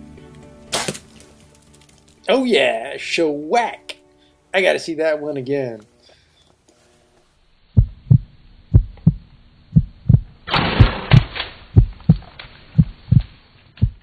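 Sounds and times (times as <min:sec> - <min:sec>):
heartbeat double thump: 0:07.8 - 0:14.0.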